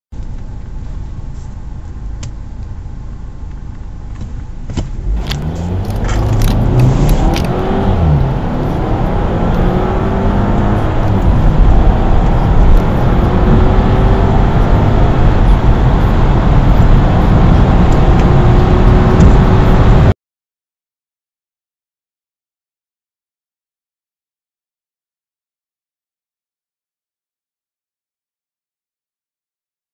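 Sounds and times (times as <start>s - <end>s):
car engines accelerating: 0.2s - 20.2s.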